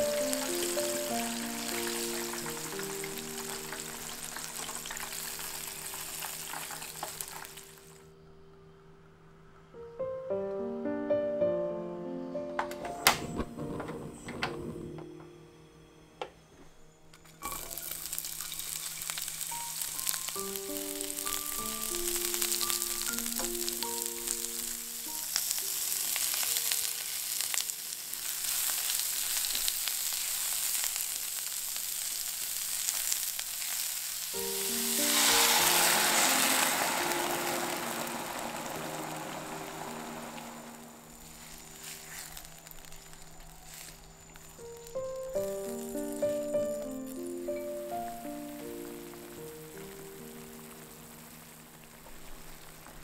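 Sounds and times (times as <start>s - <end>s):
sauce sizzling in hot pan: 0.0s - 8.0s, 17.2s - 53.0s
vegetables sizzling in frying pan: 0.0s - 8.0s, 17.2s - 53.0s.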